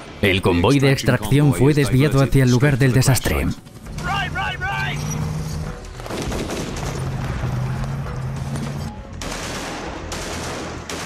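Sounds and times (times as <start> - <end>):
low music drone: 3.1 - 11.0
rapid automatic gunfire: 6.0 - 11.0.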